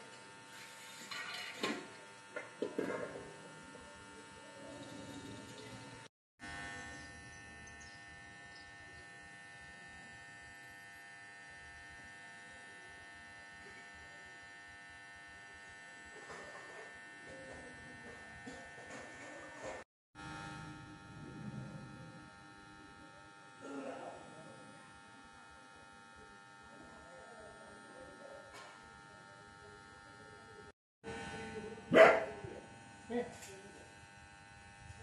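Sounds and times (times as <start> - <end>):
faint electrical buzz: 0.0 - 35.0
high many-toned whine: 4.8 - 12.8, 20.2 - 34.0.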